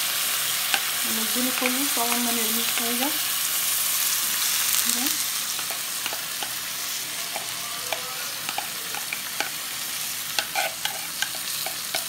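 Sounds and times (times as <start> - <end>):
oil sizzling in a pan: 0.0 - 12.0
spoon scraping and clicking: 7.4 - 9.6, 10.4 - 12.0.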